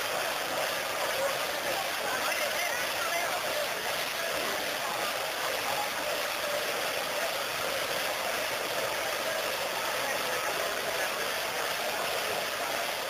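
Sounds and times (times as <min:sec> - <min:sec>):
crowd hubbub: 0:00.0 - 0:13.0.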